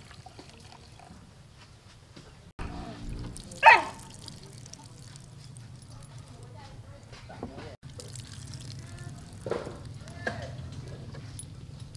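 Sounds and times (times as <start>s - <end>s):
dog barking: 3.6s - 4.1s.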